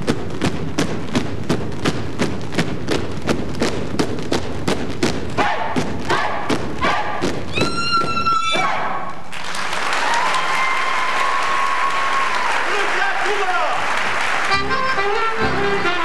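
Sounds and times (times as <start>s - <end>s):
feet stamping on wooden stage: 0.0s - 9.2s
dancers shouting: 5.4s - 9.2s
audience applause: 9.3s - 14.9s.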